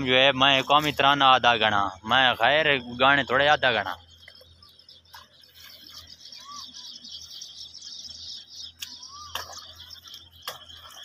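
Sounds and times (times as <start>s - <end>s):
birds chirping: 0.0s - 11.0s
short whistled calls: 4.1s - 11.0s.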